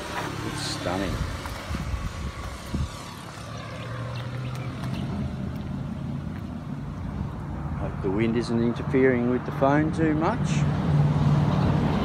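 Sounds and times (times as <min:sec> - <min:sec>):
engine hum: 0:00.0 - 0:12.0
wind buffeting microphone: 0:00.9 - 0:08.2.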